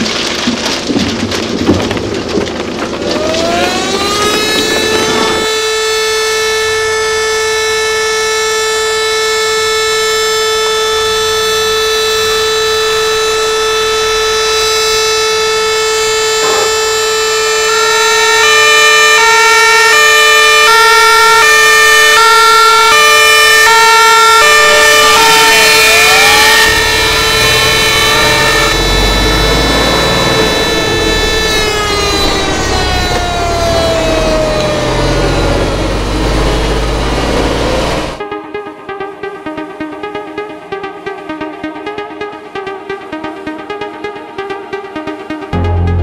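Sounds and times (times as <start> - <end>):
steady alarm siren: 2.9 - 46.0
fire engine two-tone siren: 3.0 - 38.3.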